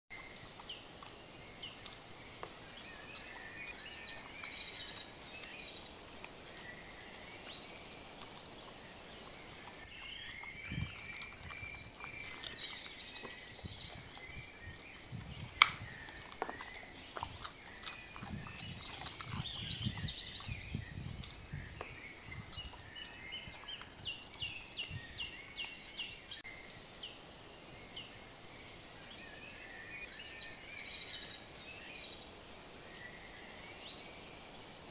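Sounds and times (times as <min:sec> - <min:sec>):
fox chewing carrot: 0:00.1 - 0:26.4
high chirping calls: 0:00.1 - 0:26.4.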